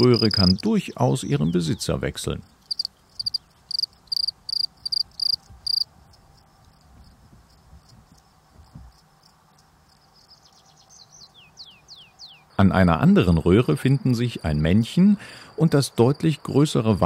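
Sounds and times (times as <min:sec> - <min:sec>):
cricket chirping: 0:00.0 - 0:00.9, 0:02.4 - 0:12.0.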